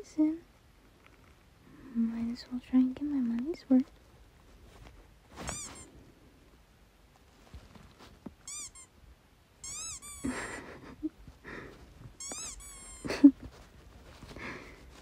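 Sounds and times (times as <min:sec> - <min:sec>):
squeaky dog toy squeaking: 0:05.4 - 0:05.9, 0:08.4 - 0:08.9, 0:09.6 - 0:10.4, 0:12.2 - 0:13.1.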